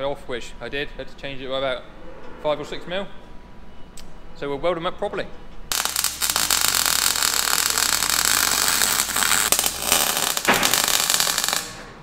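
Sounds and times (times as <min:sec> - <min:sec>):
welding arc crackling and hissing: 0:05.7 - 0:12.0.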